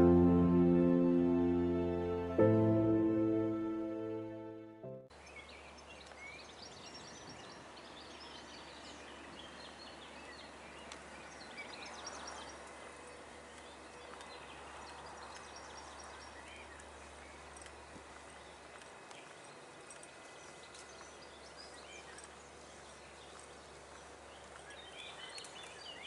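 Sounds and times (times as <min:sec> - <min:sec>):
low steady hum: 0:00.0 - 0:05.0
music: 0:00.0 - 0:05.1
small birds chirping: 0:05.2 - 0:26.0.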